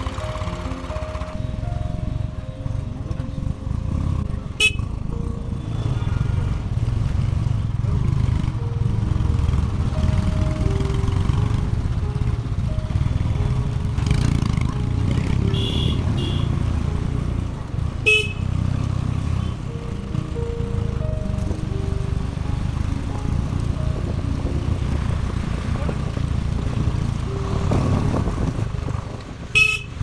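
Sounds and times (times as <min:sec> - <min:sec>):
motorcycle engine rumble: 0:00.0 - 0:30.0
horn toot: 0:15.5 - 0:16.6, 0:18.0 - 0:18.4, 0:29.5 - 0:30.0
wind buffeting microphone: 0:23.4 - 0:30.0.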